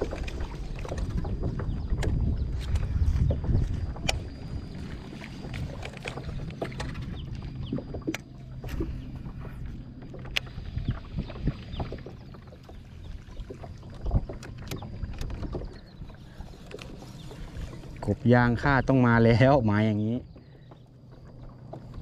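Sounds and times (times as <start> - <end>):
low steady rumble: 0.0 - 22.0
gear knocking and clicking: 13.4 - 16.0.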